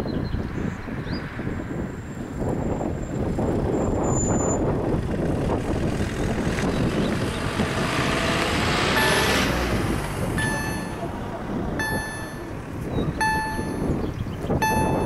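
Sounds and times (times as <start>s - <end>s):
electronic warning bell: 8.9s - 9.7s, 10.4s - 11.1s, 11.8s - 12.6s, 13.2s - 14.0s, 14.6s - 15.0s.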